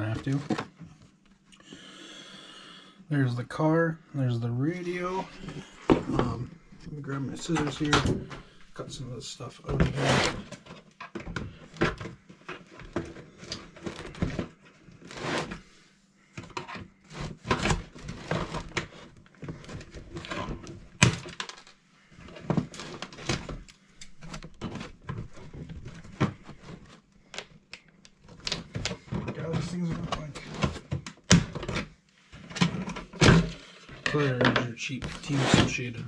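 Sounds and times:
packaging clicks rustles and knocks: 16.4 - 35.4.

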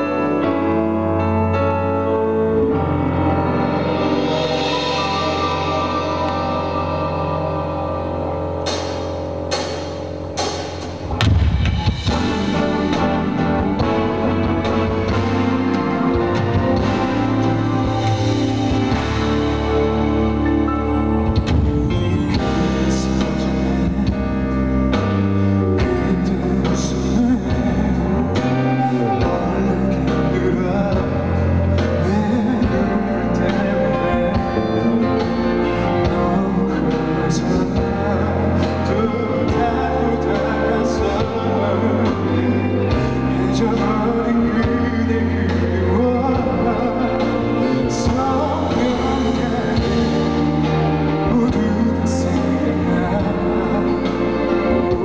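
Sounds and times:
live band and orchestra music: 0.0 - 55.0
man singing: 21.6 - 55.0.

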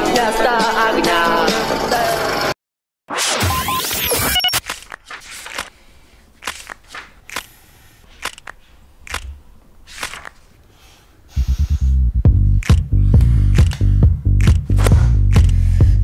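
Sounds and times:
book pages flipping: 4.6 - 9.3, 9.9 - 10.7.

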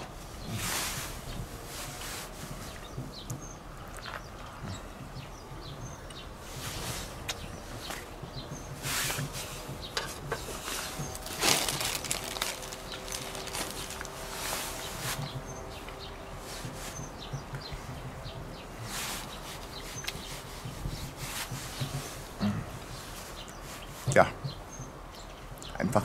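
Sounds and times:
rustles and clicks: 6.4 - 24.2.

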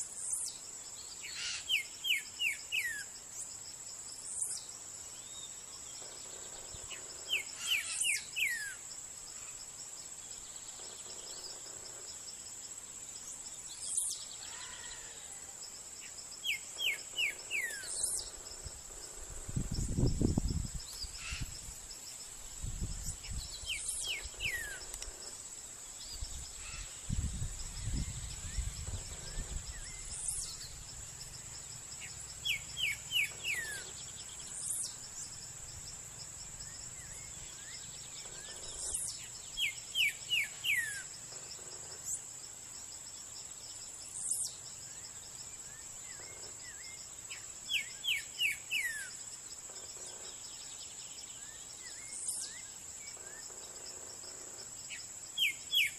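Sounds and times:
faint bird chirps: 0.0 - 3.2, 4.3 - 8.8, 22.7 - 25.3, 26.0 - 35.4
insect drone: 0.0 - 55.9.

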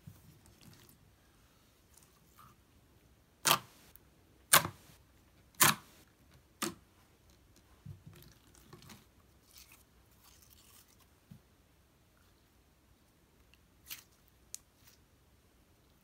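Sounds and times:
soft squishes of slime: 0.0 - 3.1, 6.4 - 16.0.

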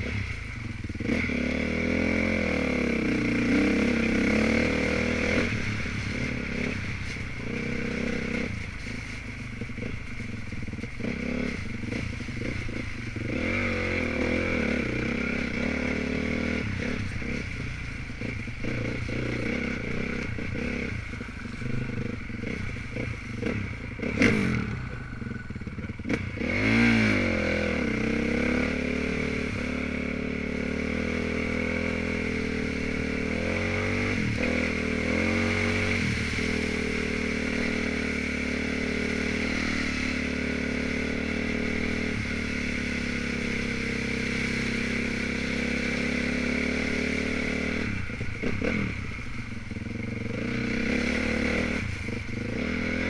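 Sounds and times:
dirt bike engine revving: 0.0 - 53.0.

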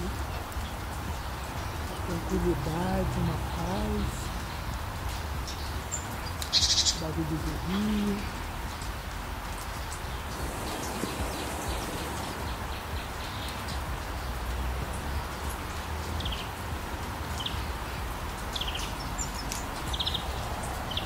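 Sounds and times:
forest stream rushing over rocks: 0.0 - 21.0
bird chirps: 10.0 - 14.3.

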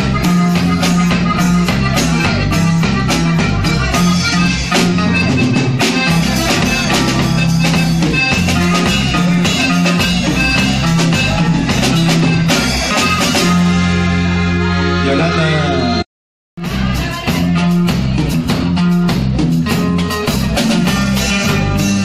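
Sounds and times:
drums striking: 0.0 - 14.4, 16.6 - 22.0
band music with steady beat: 0.0 - 16.0, 16.6 - 22.0.

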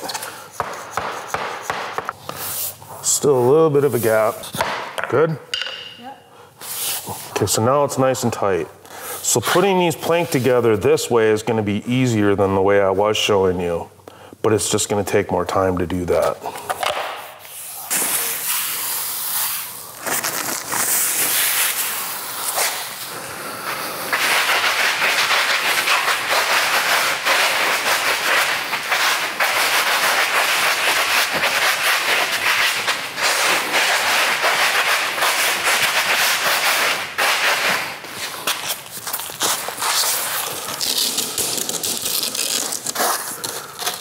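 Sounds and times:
raspy scratching on vinyl plank: 0.0 - 2.8, 17.5 - 23.0, 23.7 - 44.0.

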